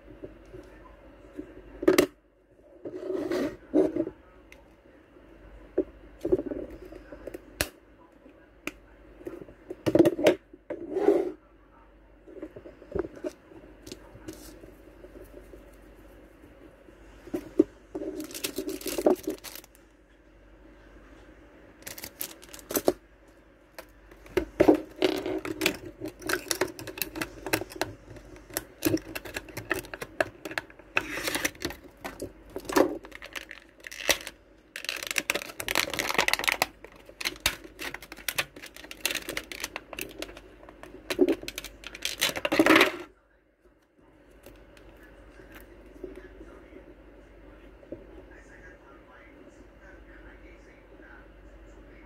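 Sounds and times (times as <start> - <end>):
plastic packaging crinkling: 18.1 - 19.8, 21.8 - 23.0, 23.8 - 42.9.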